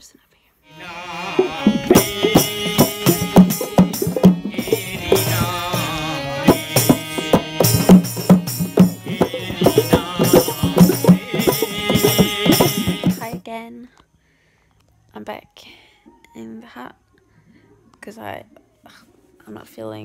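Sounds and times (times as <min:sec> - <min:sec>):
people singing: 0:00.7 - 0:13.4
hand drums beating: 0:01.2 - 0:13.4
sharp metallic strikes: 0:01.4 - 0:13.4.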